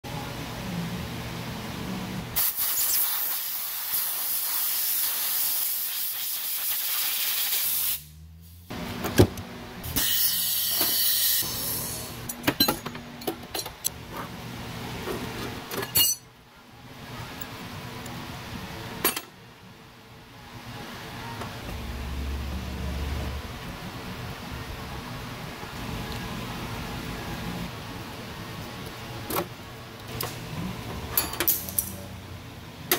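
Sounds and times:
compressed air hissing from hose: 2.4 - 8.7, 10.0 - 12.1.

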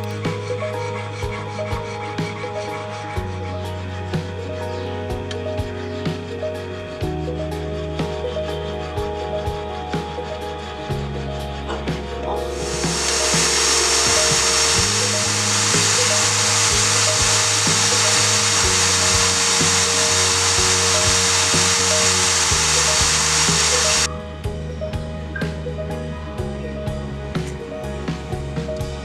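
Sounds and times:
grinder grinding metal: 0.0 - 6.4, 11.7 - 24.1
background music: 0.0 - 29.0.

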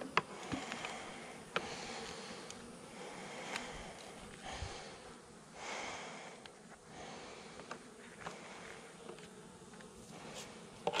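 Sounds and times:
hive frames clicking: 0.0 - 2.7, 3.4 - 4.5
honeybees buzzing: 0.0 - 11.0.

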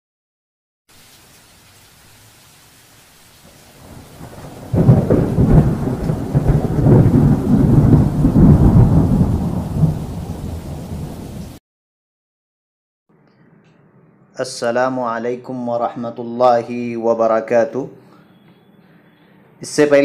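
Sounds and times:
faint rain-like hiss: 0.9 - 11.6
thunder rumbling: 3.5 - 11.6.

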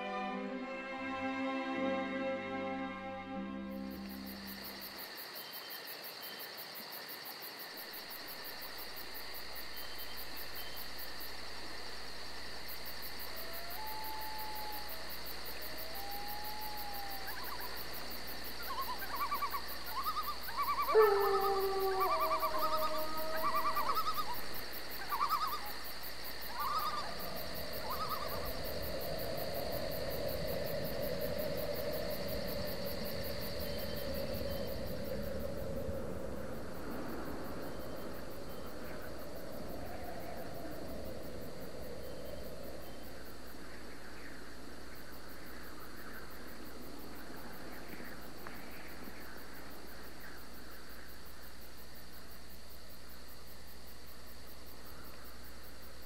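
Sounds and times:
faint insect chirring: 2.8 - 56.0
owl hooting: 13.3 - 25.8, 26.4 - 36.6.

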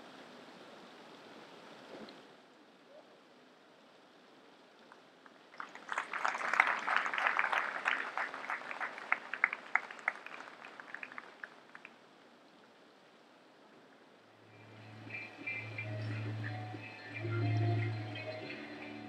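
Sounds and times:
audience applause: 5.5 - 12.0.

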